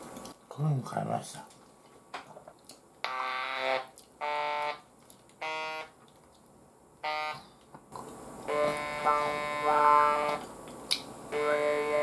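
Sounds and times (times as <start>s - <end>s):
electrolarynx buzz: 3.0s - 4.8s, 7.0s - 7.5s, 8.4s - 10.4s, 11.2s - 12.0s.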